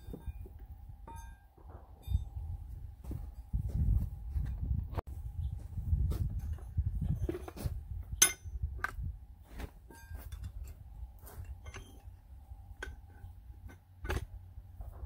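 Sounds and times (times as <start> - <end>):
sharp ringing metal clink: 1.1 - 2.4, 8.2 - 8.6
metal tools clinking and knocking: 6.4 - 9.0, 9.8 - 14.4.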